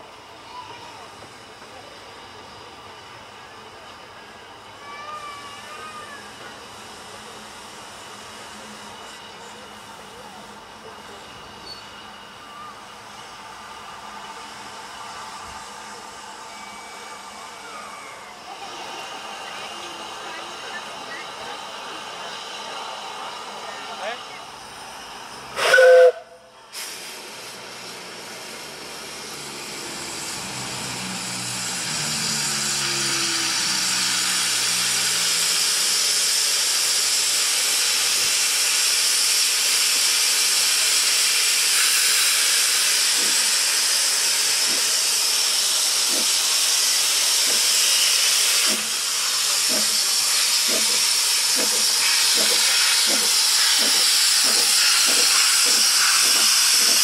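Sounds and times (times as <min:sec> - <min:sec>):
steam locomotive exhaust beats: 0:18.5 - 0:57.0
steam hissing from drain cocks: 0:24.7 - 0:57.0
steam locomotive whistle: 0:25.6 - 0:26.5.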